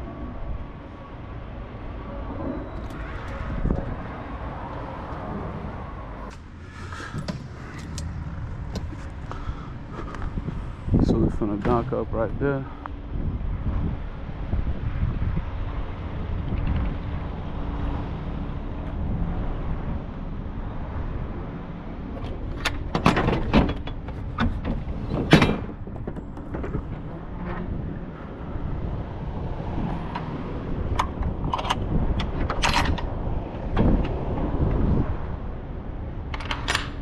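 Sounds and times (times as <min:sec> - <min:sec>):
low rumble: 0:00.0 - 0:22.2
trailer door metal clanks: 0:22.2 - 0:27.8.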